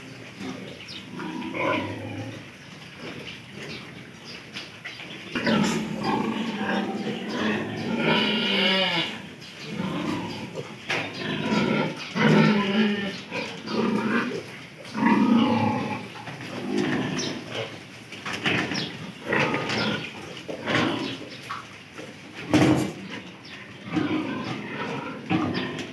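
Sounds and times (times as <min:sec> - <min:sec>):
piglets grunting and squealing: 0:00.0 - 0:03.9, 0:05.3 - 0:17.8, 0:22.4 - 0:25.9.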